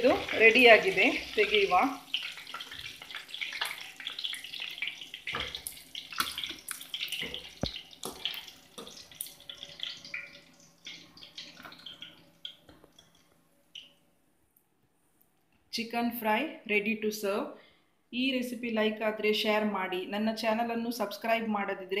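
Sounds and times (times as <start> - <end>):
hot oil sizzling: 0.0 - 13.3.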